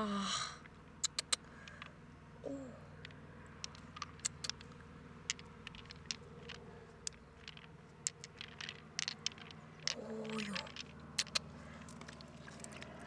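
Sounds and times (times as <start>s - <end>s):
pearls clicking against shell: 0.6s - 13.0s.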